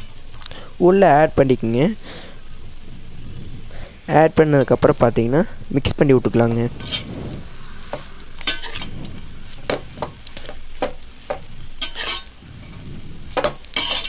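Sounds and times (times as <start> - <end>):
light sizzle: 0.0 - 14.0
ladle scraping metal pot: 6.7 - 7.3, 8.0 - 10.2, 11.8 - 14.0.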